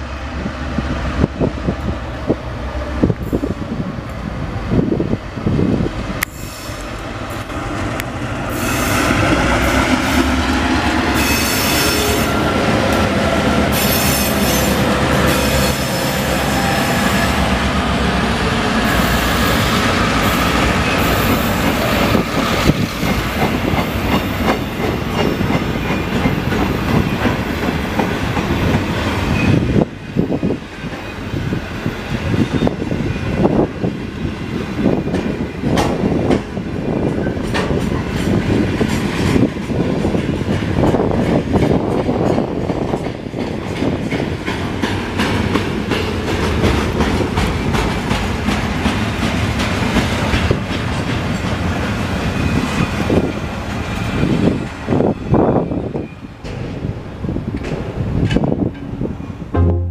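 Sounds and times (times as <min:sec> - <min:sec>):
diesel locomotive engines: 0:00.0 - 0:59.8.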